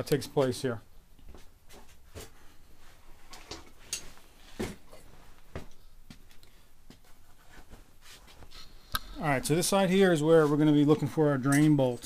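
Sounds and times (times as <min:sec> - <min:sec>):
footsteps on garage floor: 0:01.2 - 0:03.0.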